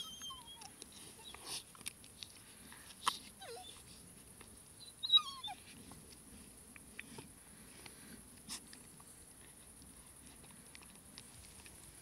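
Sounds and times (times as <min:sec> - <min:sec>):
dogs whimpering: 0:00.0 - 0:01.6, 0:03.4 - 0:03.9, 0:04.8 - 0:05.7
paws scratching in soil: 0:00.0 - 0:12.0.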